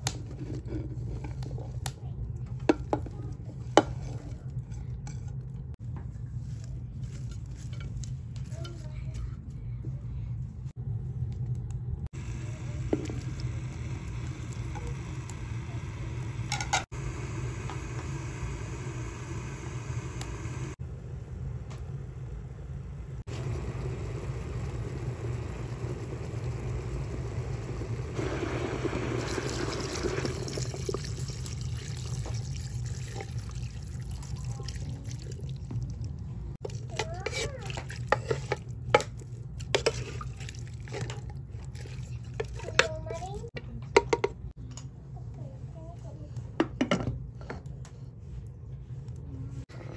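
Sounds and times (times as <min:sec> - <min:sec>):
steady low hum: 0:00.0 - 0:30.2
water pouring into a pot: 0:23.3 - 0:38.2.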